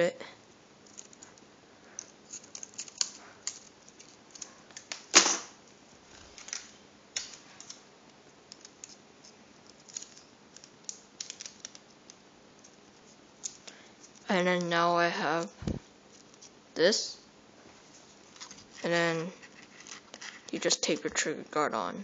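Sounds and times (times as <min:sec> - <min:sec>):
scissors snipping paper: 0:02.0 - 0:05.0.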